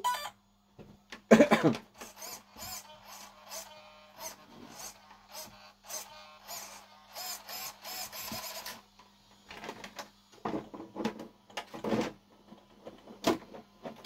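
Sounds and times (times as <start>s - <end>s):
electric motor whirring bursts: 1.9s - 8.9s.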